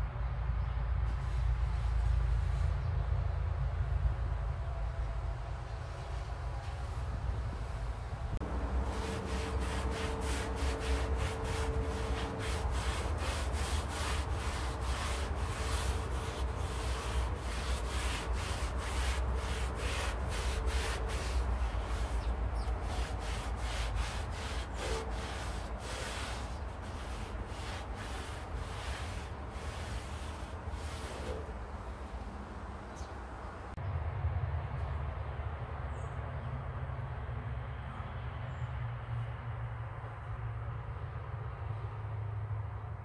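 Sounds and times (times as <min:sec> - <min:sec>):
low steady rumble: 0:00.0 - 0:35.8
rhythmic rubbing strokes: 0:08.4 - 0:31.5.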